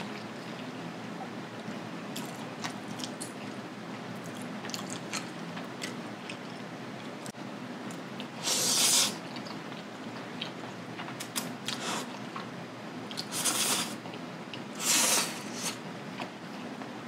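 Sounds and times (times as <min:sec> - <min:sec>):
soft chewing clicks: 0:04.2 - 0:08.3
person slurping noodles: 0:14.8 - 0:15.8.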